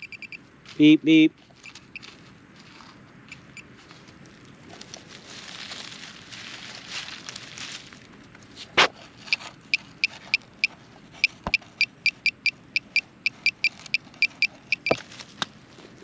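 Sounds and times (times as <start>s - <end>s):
pinpointer probe short high beeps: 0.0s - 0.4s, 9.7s - 15.0s
loose soil rustling: 0.5s - 16.0s.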